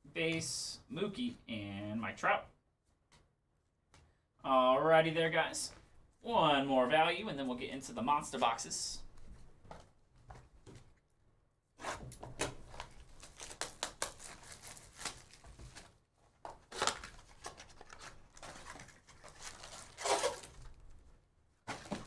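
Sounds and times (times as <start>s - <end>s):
packaging ripping and crinkling: 12.6s - 15.9s, 16.6s - 20.8s.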